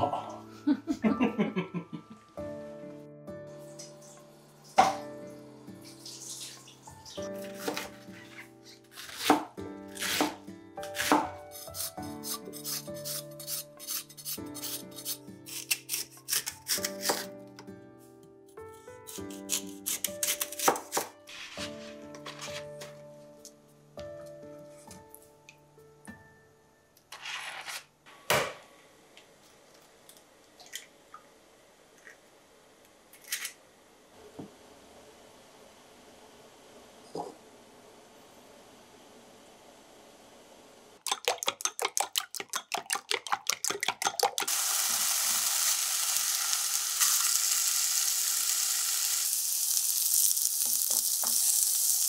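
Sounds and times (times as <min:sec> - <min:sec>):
background music: 0:00.0 - 0:26.9
eggshell clicking: 0:41.0 - 0:44.5
egg cracking on glass jug: 0:41.0 - 0:44.6.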